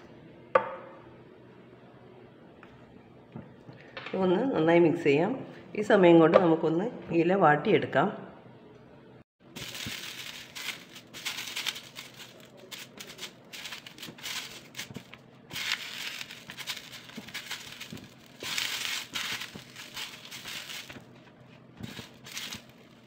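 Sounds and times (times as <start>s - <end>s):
banana leaves crinkling and rustling: 9.5s - 23.0s.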